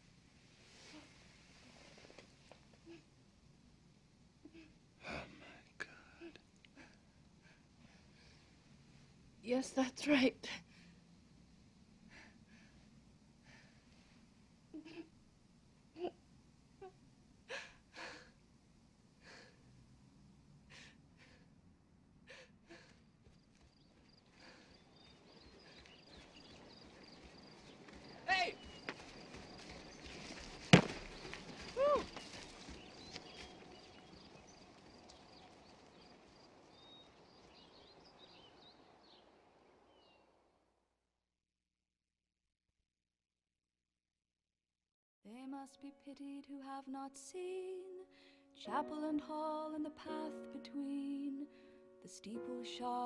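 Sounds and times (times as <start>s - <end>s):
low steady hiss: 0.0s - 29.1s, 45.3s - 53.0s
small birds chirping: 22.9s - 40.3s
person gasping breaths: 24.3s - 24.8s.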